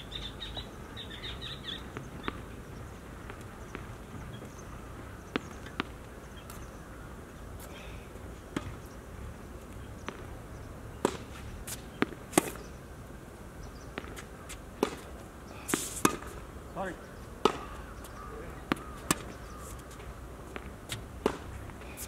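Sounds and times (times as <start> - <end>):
racket strings striking ball: 16.0 - 16.4, 17.4 - 17.8, 20.6 - 21.6.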